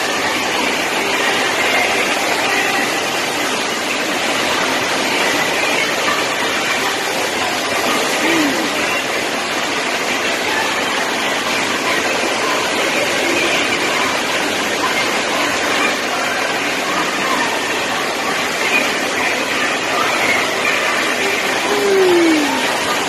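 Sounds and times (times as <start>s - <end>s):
water rushing through rapids: 0.0s - 23.0s.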